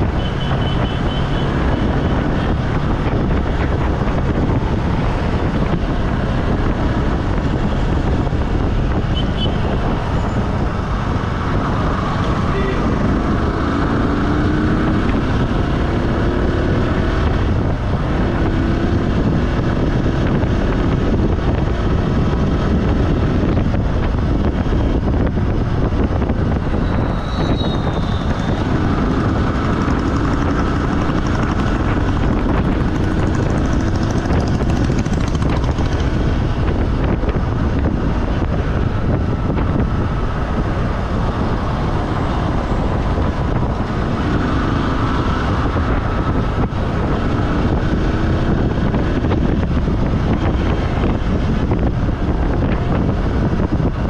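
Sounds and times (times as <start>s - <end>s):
vehicle engine and road rumble: 0.0s - 54.0s.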